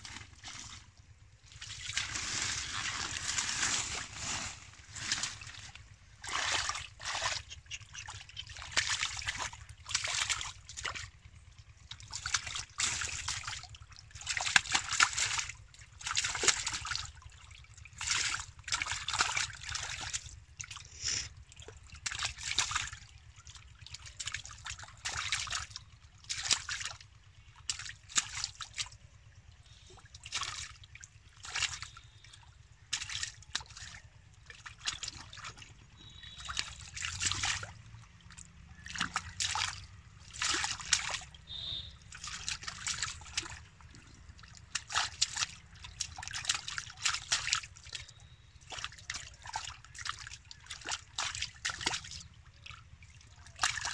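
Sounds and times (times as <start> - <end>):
fish thrashing at water surface: 0.0 - 11.1, 34.7 - 52.1
hands splashing in shallow water: 1.5 - 10.6, 34.6 - 52.2.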